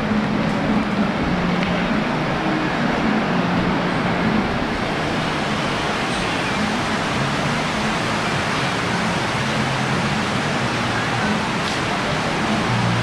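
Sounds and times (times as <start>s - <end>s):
heavy rain pouring: 0.0s - 13.0s.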